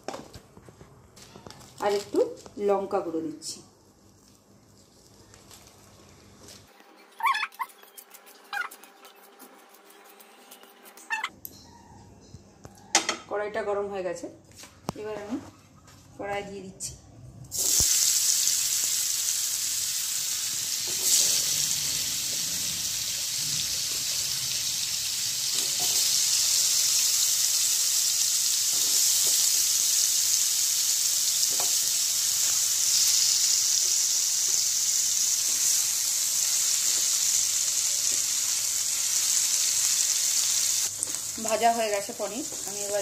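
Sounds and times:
cheese sizzling in hot oil: 17.5s - 43.0s.

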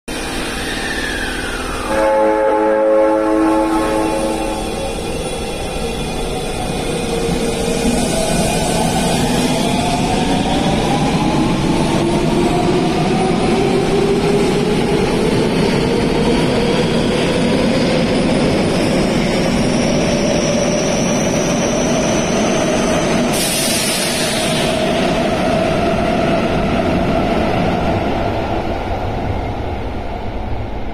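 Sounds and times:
burst of hiss: 23.4s - 24.8s.

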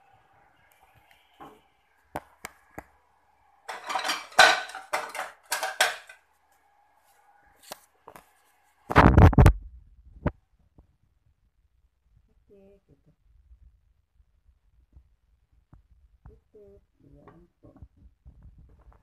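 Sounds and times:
kitchenware clattering and clinking: 3.7s - 6.2s.

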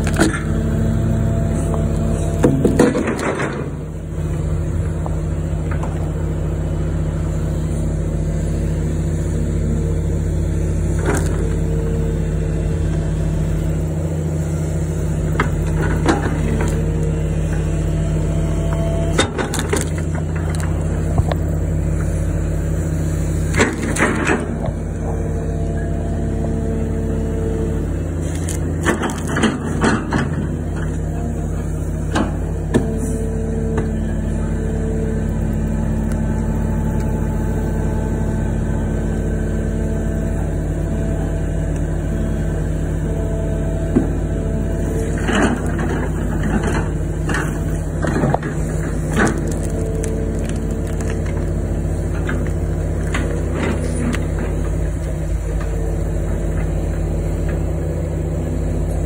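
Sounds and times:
cracks and knocks of roots: 0.0s - 0.6s, 10.9s - 11.6s, 15.3s - 17.6s, 18.7s - 21.6s, 23.5s - 25.2s, 28.2s - 31.2s, 45.0s - 55.8s
excavator diesel engine running: 0.0s - 59.0s
hydraulic whine: 0.0s - 59.0s.

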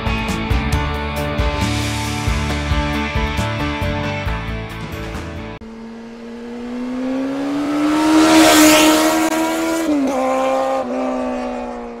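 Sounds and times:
vehicle engine passing by: 5.6s - 12.0s
rushing whoosh: 6.1s - 9.7s.

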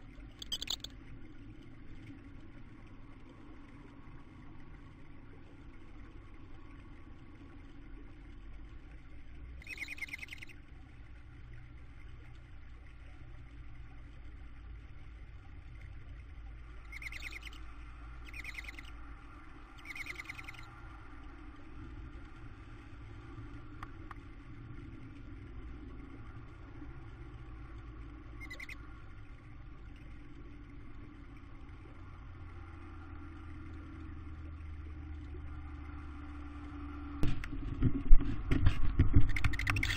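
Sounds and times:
low hum: 0.0s - 39.9s
owl chicks hissing begging calls: 9.6s - 10.5s, 16.9s - 17.6s, 18.3s - 18.9s, 19.8s - 20.6s, 28.4s - 28.8s.

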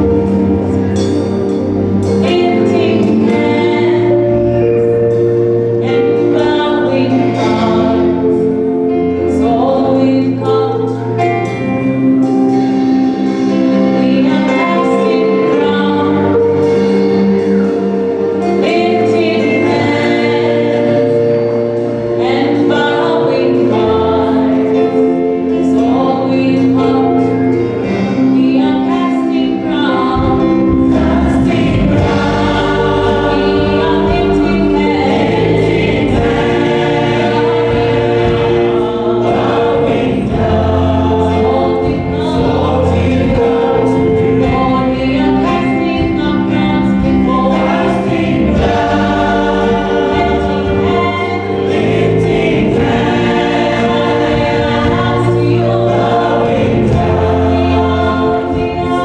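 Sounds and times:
choir singing gospel song: 0.0s - 59.0s
held instrumental chords: 0.0s - 59.0s
low bass notes: 0.0s - 59.0s.

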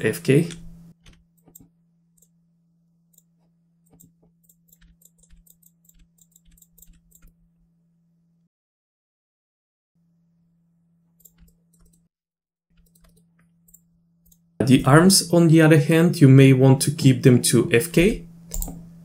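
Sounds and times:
low electrical hum: 0.0s - 8.5s, 12.8s - 19.0s
mouse and keyboard clicks: 3.9s - 7.4s, 12.8s - 13.2s, 18.5s - 18.8s.

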